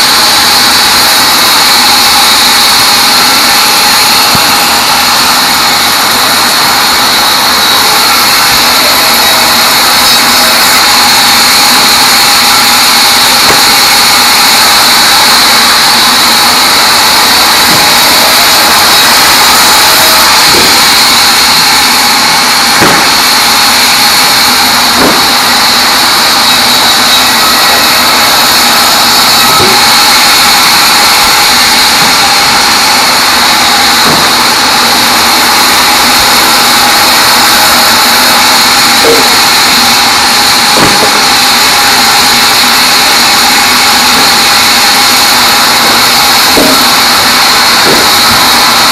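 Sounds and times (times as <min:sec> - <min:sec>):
band saw sawing logs: 0:00.0 - 0:48.9
wood knocking: 0:22.8 - 0:23.2, 0:25.0 - 0:25.4, 0:34.0 - 0:34.4, 0:46.6 - 0:46.9.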